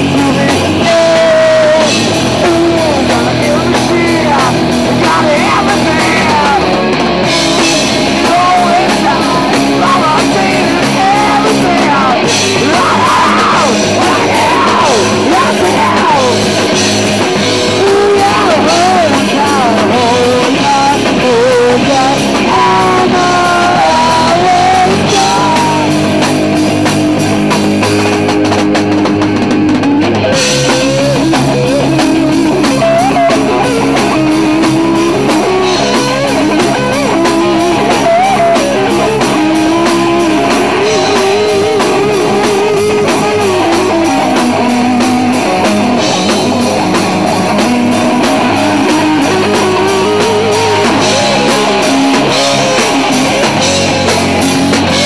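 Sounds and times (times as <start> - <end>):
lead voice singing: 0.0 - 27.8, 30.2 - 55.0
drum kit: 0.0 - 55.0
electric guitars: 0.0 - 55.0.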